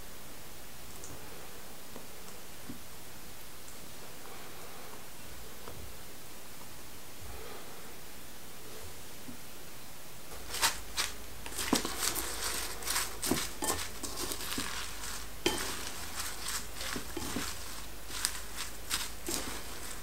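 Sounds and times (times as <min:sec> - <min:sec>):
rustling and crinkling in bowl: 0:10.3 - 0:20.0.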